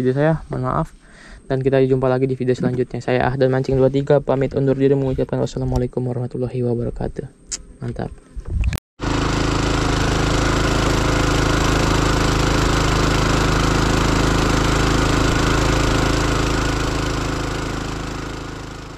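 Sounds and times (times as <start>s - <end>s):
small boat engine running: 9.0s - 18.9s.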